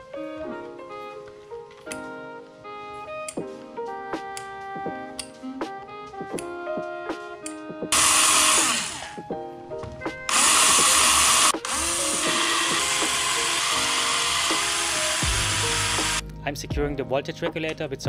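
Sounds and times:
guitar and piano music: 0.0s - 18.0s
electric screwdriver driving screws: 7.9s - 9.2s, 10.3s - 16.2s.

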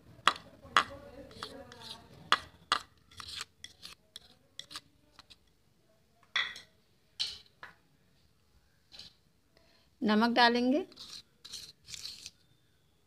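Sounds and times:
kitchenware scraping rasps: 3.0s - 5.4s.

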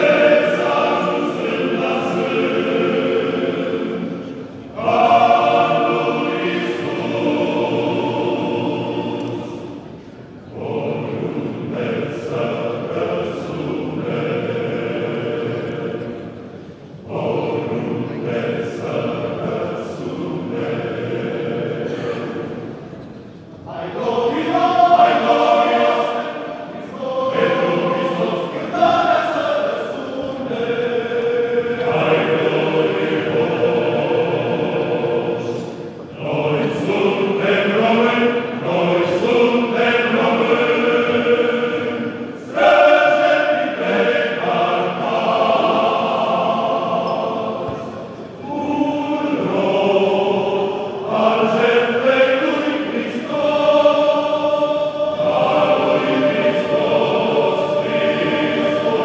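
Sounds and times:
men's choir singing in harmony: 0.0s - 59.0s.

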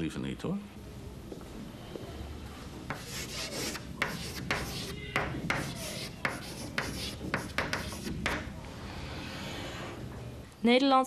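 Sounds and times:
chalk scratching on blackboard: 2.9s - 8.6s.

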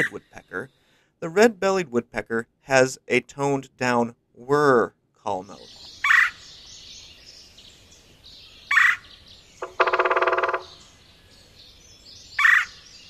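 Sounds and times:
woodpecker buzzy churr: 0.0s - 0.6s, 9.6s - 10.8s, 12.4s - 12.8s
woodpecker harsh call note: 9.6s - 10.9s.

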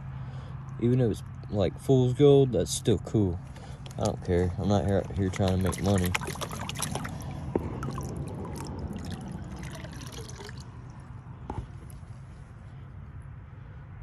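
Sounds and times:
water sloshing in plastic pan: 3.8s - 12.0s.

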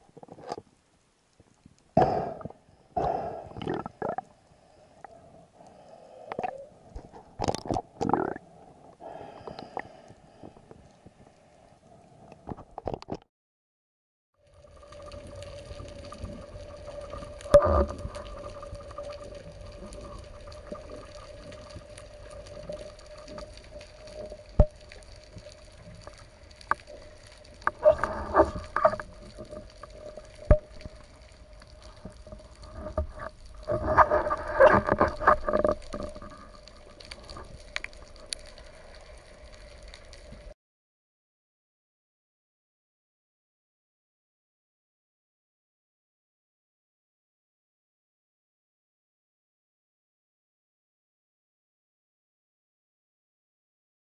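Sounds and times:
steady underwater hum: 0.0s - 12.5s, 14.4s - 40.6s
dense underwater crackling: 0.0s - 13.0s, 14.4s - 40.6s.

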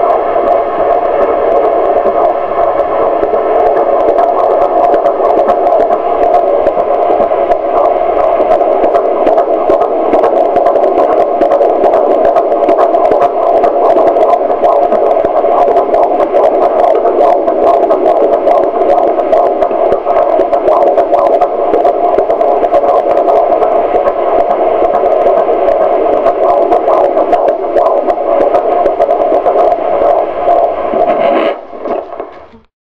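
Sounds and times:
fetal heartbeat through doppler speaker: 0.0s - 32.7s.

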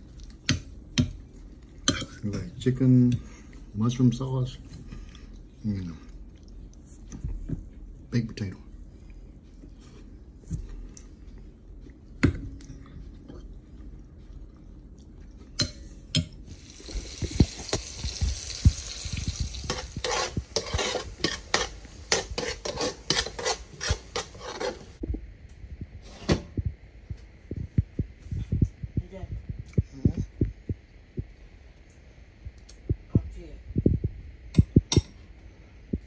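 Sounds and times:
frying pan hiss: 16.4s - 25.0s
utensil scraping frying pan: 16.5s - 25.0s.

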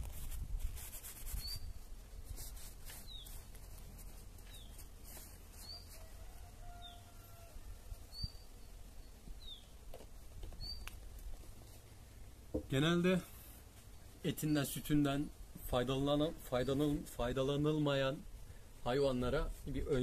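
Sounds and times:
small bird chirping: 1.3s - 1.8s, 3.0s - 3.5s, 4.4s - 6.1s, 8.0s - 9.8s, 10.5s - 11.0s.

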